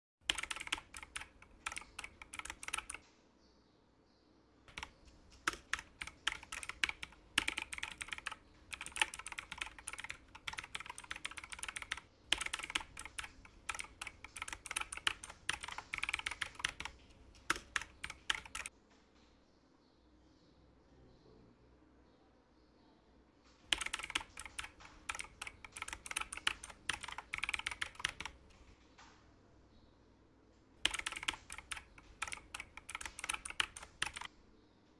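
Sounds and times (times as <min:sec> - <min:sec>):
typing on computer keyboard: 0:00.2 - 0:03.0, 0:04.7 - 0:18.7, 0:23.7 - 0:28.8, 0:30.8 - 0:34.3.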